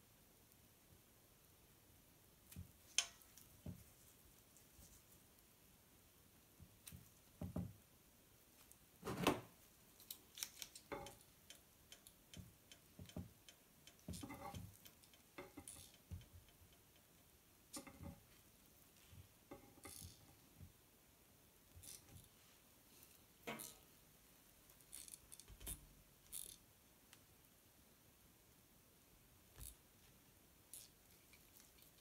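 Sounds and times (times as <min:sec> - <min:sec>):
gloved hands clicking and rustling: 0:09.8 - 0:17.9.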